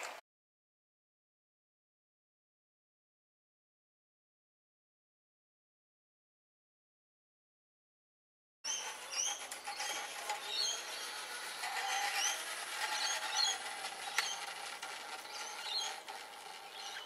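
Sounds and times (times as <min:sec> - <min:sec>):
metal wheels rattling on rail: 0:08.7 - 0:17.0.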